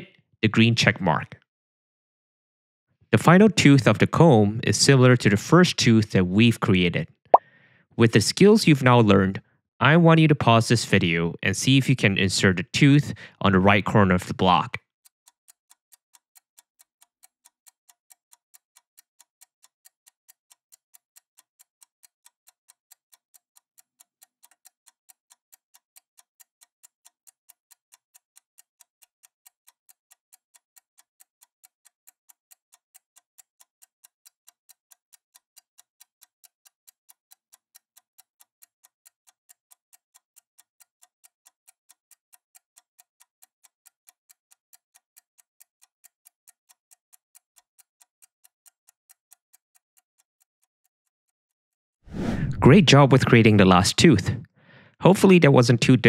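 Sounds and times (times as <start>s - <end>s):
clock ticking: 3.2s - 6.9s, 15.7s - 51.2s, 52.5s - 56.0s.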